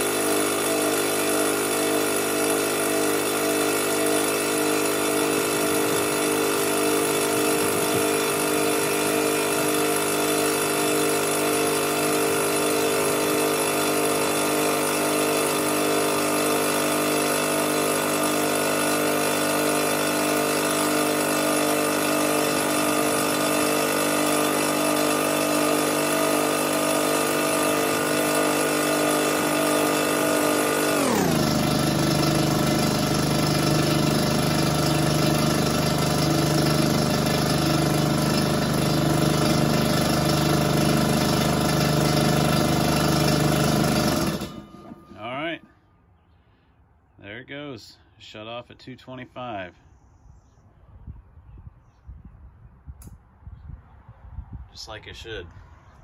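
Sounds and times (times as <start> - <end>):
air compressor running: 0.0 - 45.8.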